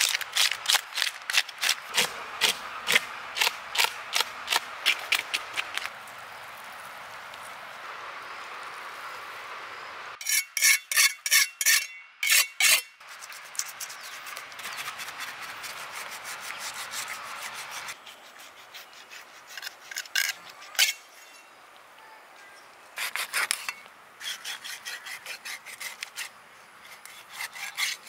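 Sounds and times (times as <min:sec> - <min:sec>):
knife scraping fish scales: 0:10.2 - 0:21.5, 0:23.0 - 0:28.0.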